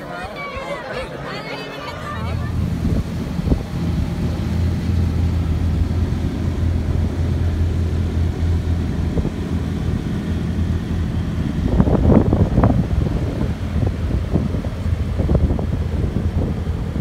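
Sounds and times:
car engine idling and revving: 2.3 - 17.0.

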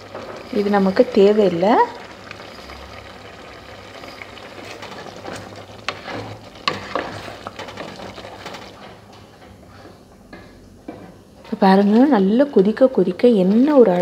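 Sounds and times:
wooden spoon stirring: 0.0 - 9.0
jam bubbling in a pot: 0.0 - 9.2.

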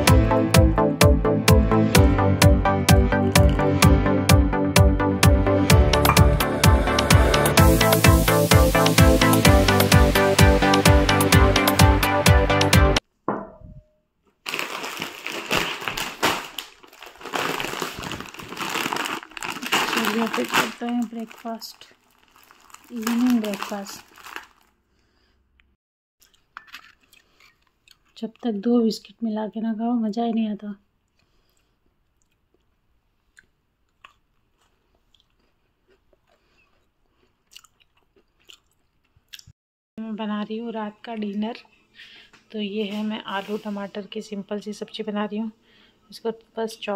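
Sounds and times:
plastic packaging crinkling: 14.4 - 24.8
chewing crunchy biscuit: 26.2 - 28.5, 31.0 - 39.5.

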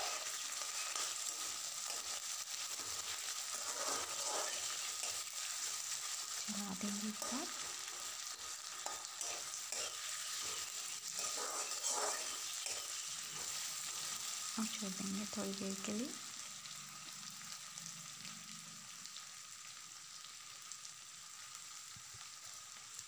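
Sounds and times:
potatoes and onions sizzling in oil: 0.0 - 23.0
metal ladle scraping pan: 2.8 - 5.3, 7.2 - 14.2.

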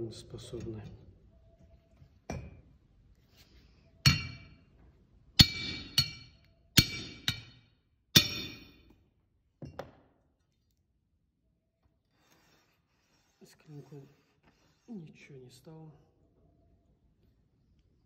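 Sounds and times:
hammer striking sword blade: 4.1 - 4.5, 5.4 - 7.6, 8.2 - 8.9.

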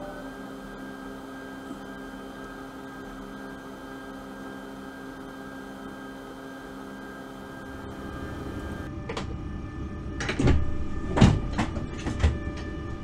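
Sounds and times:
electric locomotive hum: 0.0 - 13.0.

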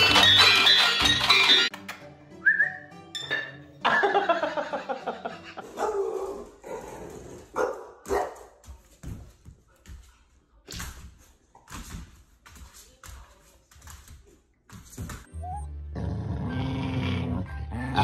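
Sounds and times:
dog barking: 5.7 - 6.4, 7.5 - 8.6.

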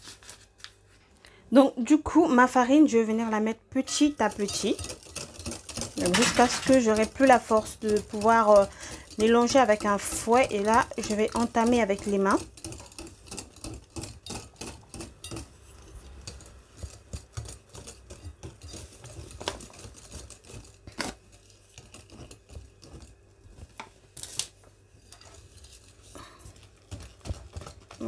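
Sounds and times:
whisk clicking against glass bowl: 3.9 - 20.4.

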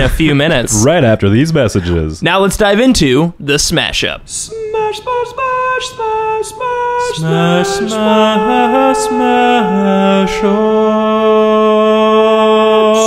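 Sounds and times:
sung vocal jingle: 4.4 - 13.0.

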